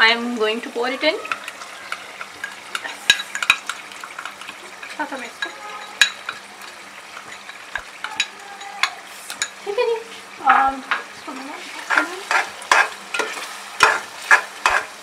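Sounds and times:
masala frying in oil: 0.0 - 15.0
metal spatula clicking on pot: 1.2 - 6.4, 11.9 - 14.9.

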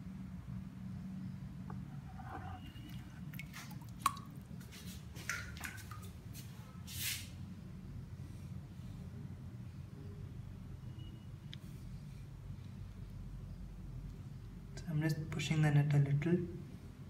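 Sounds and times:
water dripping and splashing: 2.8 - 6.4
net splashing into water: 2.9 - 6.2.

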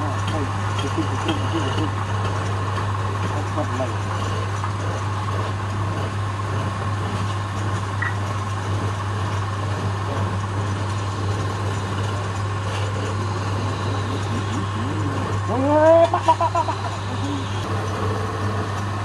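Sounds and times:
wood lathe whirring: 0.0 - 19.0.

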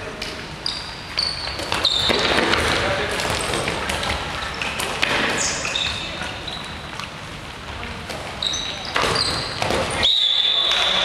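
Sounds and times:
sneakers squeaking on hardwood: 0.6 - 7.0, 8.4 - 11.0
balls thudding and bouncing: 1.1 - 6.4, 8.1 - 10.0.

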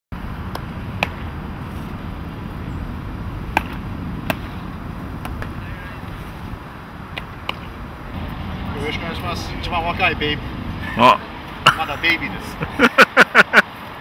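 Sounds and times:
steady low rumble: 0.1 - 12.8
baseballs smacking into gloves: 3.5 - 4.6, 5.2 - 5.6.

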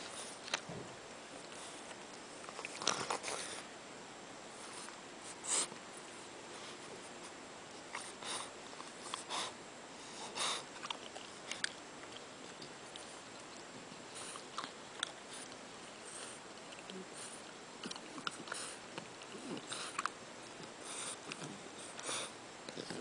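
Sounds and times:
puppy snuffling and mouthing: 10.2 - 23.0.

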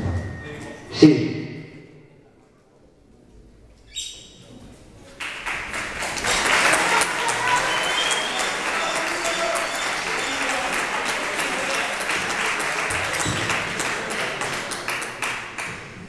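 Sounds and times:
crowd voices: 4.4 - 16.0
crowd applauding: 5.1 - 16.0.

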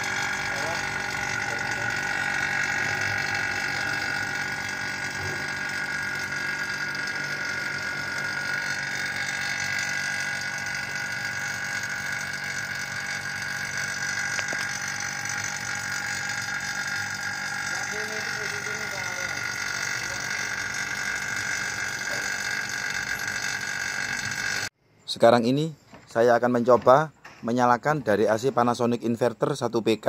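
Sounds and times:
vacuum pump running: 0.0 - 24.8.

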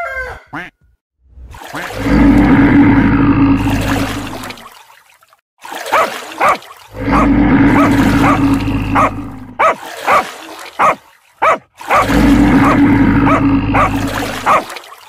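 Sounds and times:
dog barking in short yips: 10.8 - 12.0.

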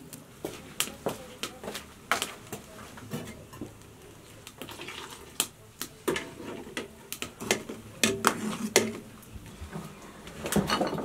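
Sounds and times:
ladle tapping and scraping in pot: 6.0 - 9.1.

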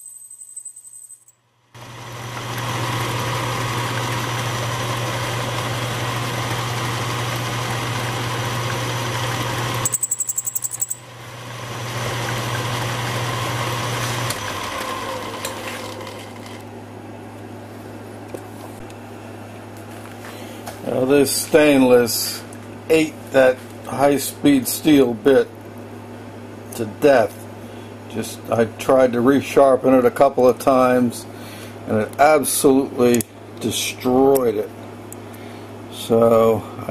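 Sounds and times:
lathe motor hum: 1.8 - 9.9, 11.0 - 16.7
lathe tool cutting metal: 1.8 - 9.9
pulsing squeal of tool chatter: 9.8 - 11.0.

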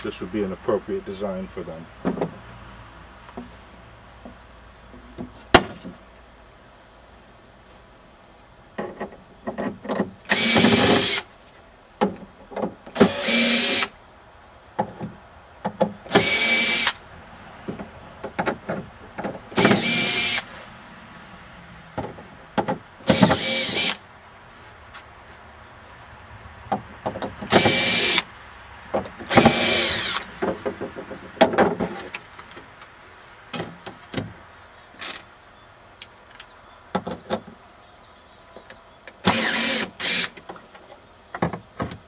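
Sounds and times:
cordless drill backing out screws: 10.3 - 11.2, 16.1 - 17.0, 19.6 - 20.5, 23.1 - 24.0, 27.5 - 28.2, 29.3 - 30.3, 39.2 - 40.4.

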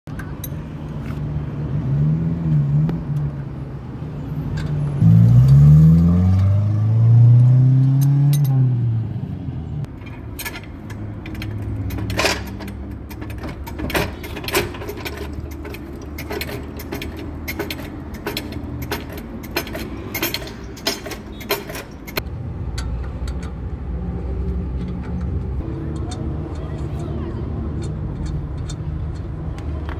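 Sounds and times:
wrench clinking on wheel nuts: 0.1 - 1.2, 7.9 - 8.6, 9.9 - 23.8, 27.8 - 29.9.

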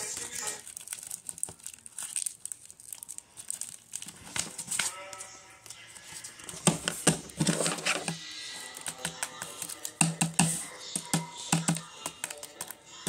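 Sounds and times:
plastic wrapping crinkling: 0.0 - 10.0.

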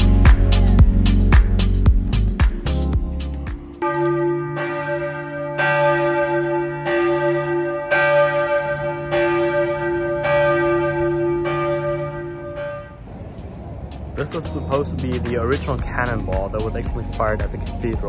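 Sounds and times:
church bell ringing: 3.8 - 13.1.

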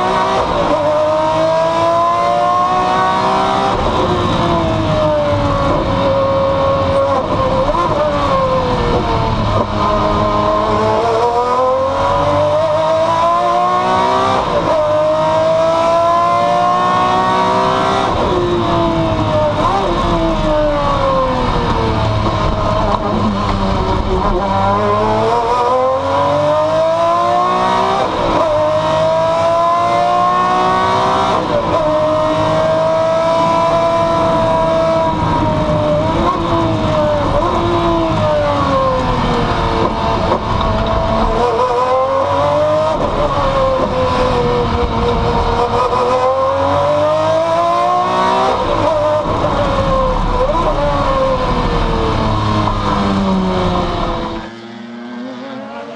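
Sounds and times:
racing car engine from cockpit: 0.0 - 55.9.

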